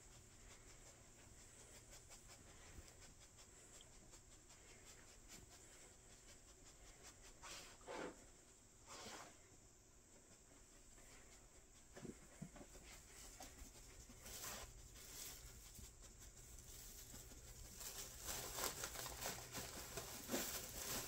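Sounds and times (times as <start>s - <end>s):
dog sniffing: 0.0s - 9.4s.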